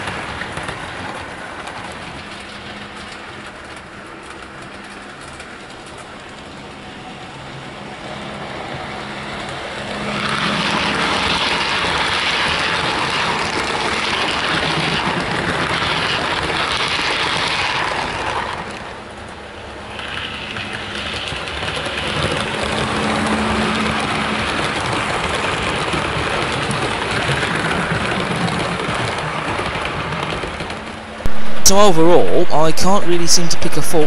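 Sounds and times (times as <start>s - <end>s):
model train wheels rattling: 19.9s - 31.0s.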